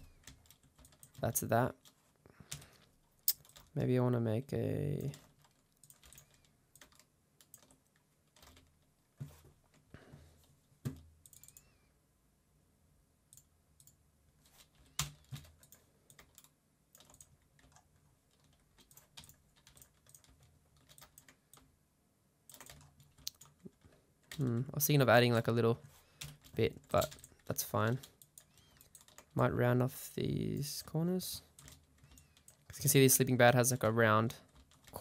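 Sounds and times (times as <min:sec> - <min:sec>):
keyboard and mouse clicks: 0:00.0 - 0:03.8, 0:05.0 - 0:09.8, 0:10.9 - 0:11.7, 0:13.3 - 0:21.7, 0:22.5 - 0:24.7, 0:31.5 - 0:32.8.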